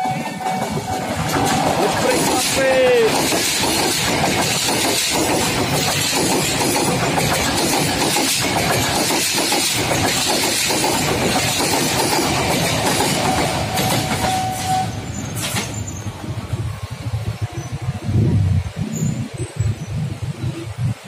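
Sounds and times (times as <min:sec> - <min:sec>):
train wheels clattering over rails: 0:00.0 - 0:17.9
electric train passing: 0:00.0 - 0:21.0.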